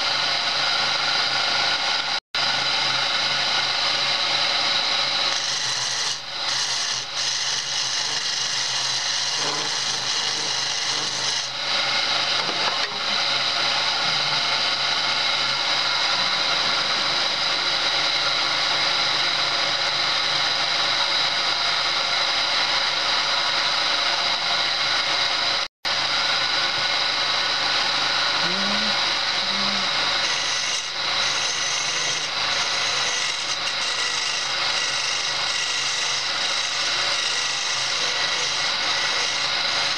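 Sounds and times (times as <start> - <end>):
lathe machine hum: 0.0 - 39.9
chisel scraping spinning wood: 3.3 - 21.2, 26.3 - 39.9.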